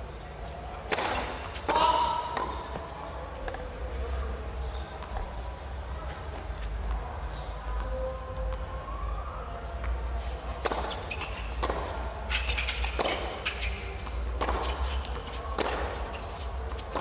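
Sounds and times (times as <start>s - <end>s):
rackets striking tennis ball: 0.8s - 3.6s, 10.6s - 17.0s
tennis ball bouncing: 0.9s - 3.6s, 10.6s - 17.0s.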